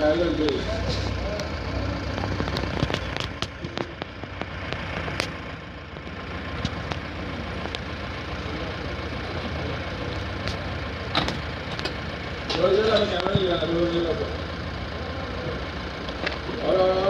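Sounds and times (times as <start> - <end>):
engine idling: 0.0 - 17.0
sharp clicks and knocks: 2.1 - 7.9, 10.4 - 13.4.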